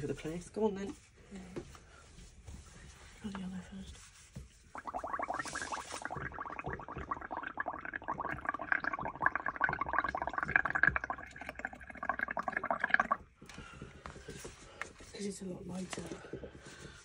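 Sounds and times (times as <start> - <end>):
blowing bubbles through a straw: 4.7 - 13.5.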